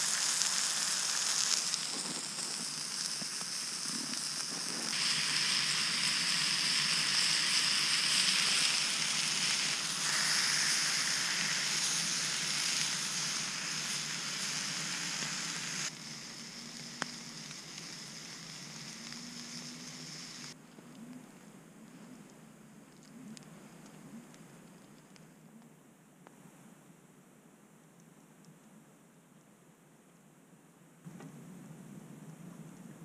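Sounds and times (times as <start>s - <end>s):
steaks sizzling in a frying pan: 0.0s - 20.6s.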